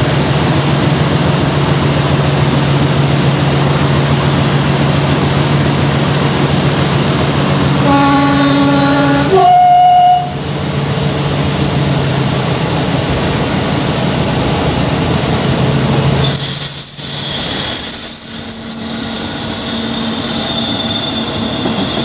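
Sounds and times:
diesel locomotive engine running: 0:00.0 - 0:22.0
wheel and rail rumble: 0:00.0 - 0:22.0
turbocharger whistle: 0:07.3 - 0:10.4, 0:15.4 - 0:22.0.

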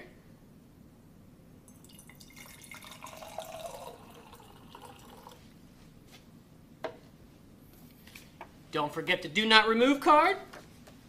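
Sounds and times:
water pouring into glass jar: 0:01.7 - 0:05.4.

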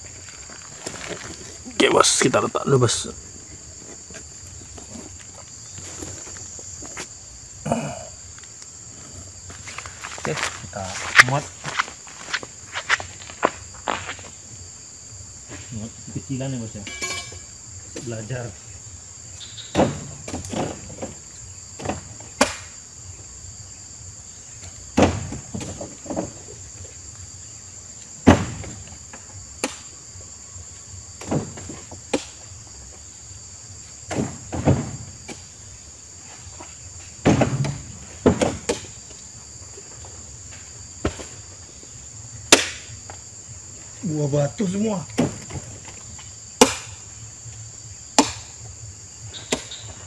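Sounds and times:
high insect drone: 0:00.0 - 0:50.0
fruit bunches thudding into truck bed: 0:19.7 - 0:22.8, 0:24.7 - 0:26.7, 0:28.2 - 0:29.9, 0:31.2 - 0:32.6, 0:34.0 - 0:35.6, 0:36.5 - 0:39.2, 0:40.9 - 0:41.6, 0:44.9 - 0:47.0.

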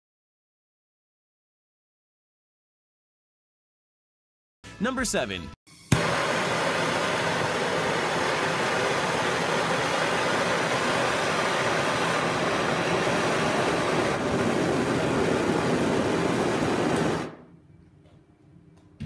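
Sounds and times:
blow torch flame rushing: 0:05.9 - 0:17.4.

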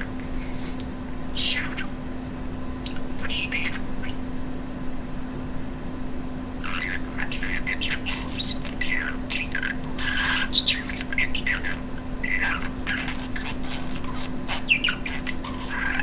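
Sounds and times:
budgerigar chattering: 0:00.0 - 0:00.8, 0:02.8 - 0:04.2, 0:06.6 - 0:16.0
steady low hum: 0:00.0 - 0:16.0.

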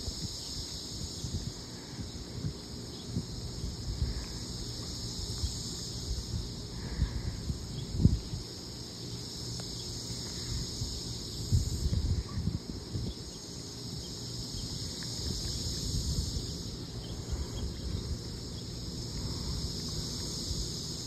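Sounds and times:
insect chorus: 0:00.0 - 0:21.0.

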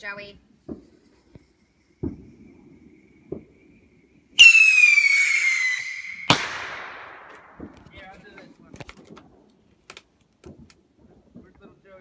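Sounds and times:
firework rocket whistle: 0:01.8 - 0:07.4
firework bang: 0:02.0 - 0:03.6, 0:04.4 - 0:08.1.

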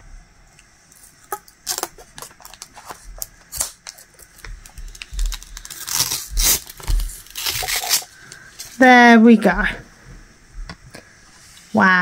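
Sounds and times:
plastic film being peeled off: 0:01.6 - 0:08.8.

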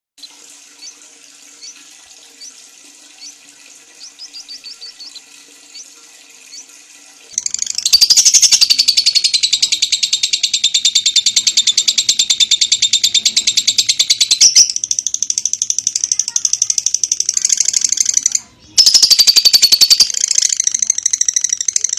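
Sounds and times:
lovebird chattering: 0:04.0 - 0:05.9, 0:07.3 - 0:21.9.

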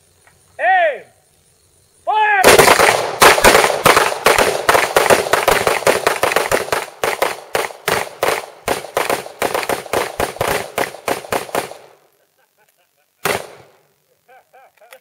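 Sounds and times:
rapid gunfire: 0:02.4 - 0:12.0, 0:13.2 - 0:13.8.

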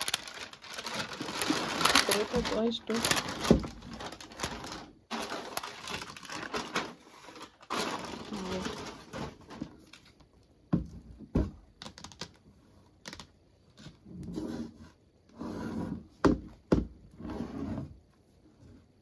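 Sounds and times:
plastic wrap rubbing and scraping: 0:00.0 - 0:10.2.

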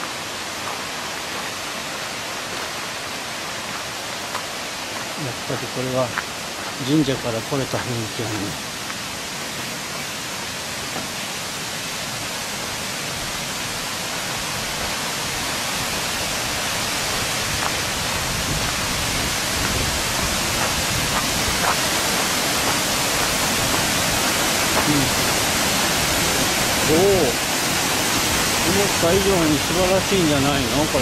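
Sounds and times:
waterfall rushing: 0:00.0 - 0:31.0.

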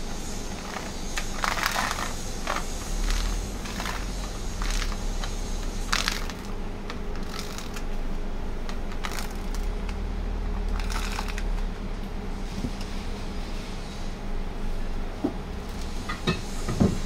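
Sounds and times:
steady low hum: 0:00.0 - 0:17.0
plastic scraper scraping powder: 0:00.4 - 0:06.5.

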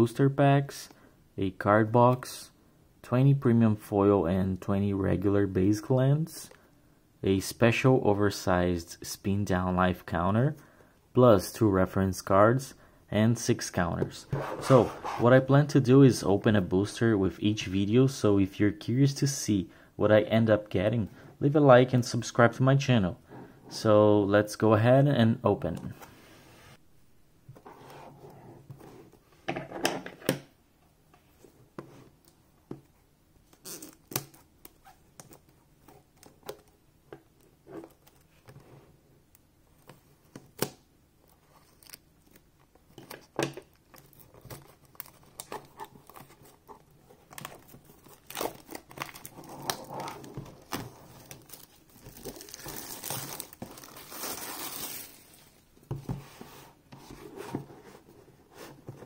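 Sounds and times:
plastic shrink-wrap crinkling and tearing: 0:47.3 - 0:55.6.

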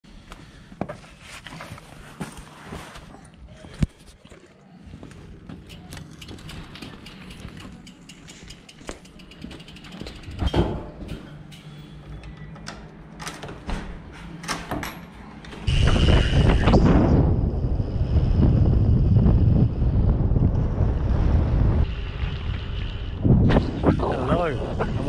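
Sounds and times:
bicycle clicks and knocks: 0:05.5 - 0:15.7
wooden door opening: 0:12.2 - 0:15.1
wind rush on microphone: 0:15.7 - 0:25.0.

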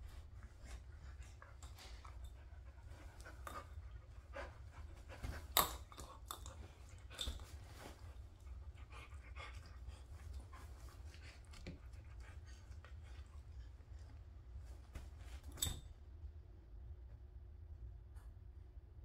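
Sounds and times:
dog panting: 0:00.0 - 0:14.2.

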